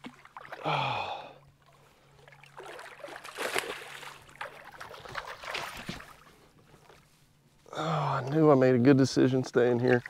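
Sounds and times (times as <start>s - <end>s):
fish splashing at the surface: 2.4s - 6.2s.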